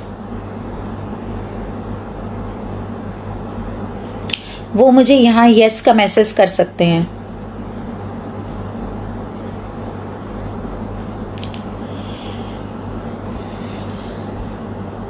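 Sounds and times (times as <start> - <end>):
low electrical hum: 0.0 - 15.0
steady hiss: 11.3 - 15.0
sharp click: 11.4 - 11.7.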